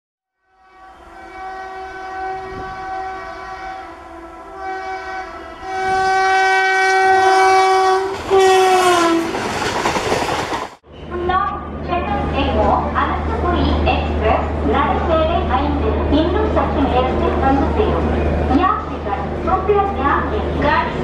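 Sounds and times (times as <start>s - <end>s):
locomotive horn blasts: 0.4s - 9.3s
train rushing past: 0.9s - 21.0s.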